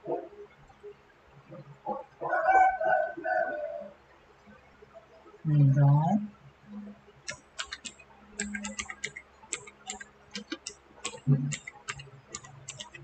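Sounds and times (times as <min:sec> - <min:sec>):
keyboard and mouse clicks: 0:07.2 - 0:13.0.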